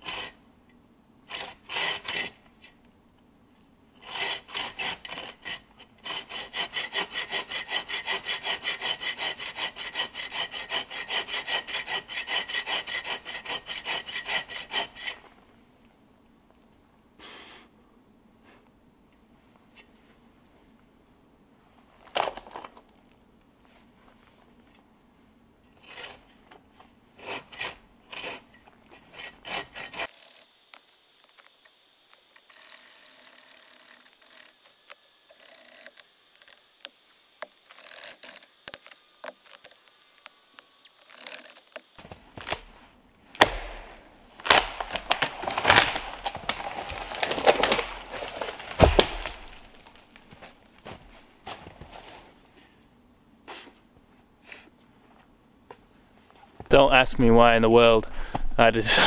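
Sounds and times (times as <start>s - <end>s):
hand saw rasping strokes: 0.0s - 0.4s, 1.3s - 2.4s, 4.0s - 15.3s, 25.8s - 26.4s, 27.2s - 42.0s
tree knocks and cracks: 43.4s - 51.1s.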